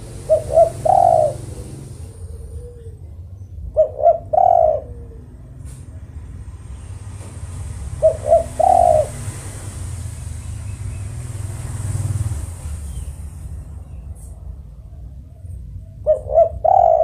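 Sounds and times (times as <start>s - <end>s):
dove cooing: 0.0s - 6.1s, 7.6s - 10.0s, 14.2s - 17.0s.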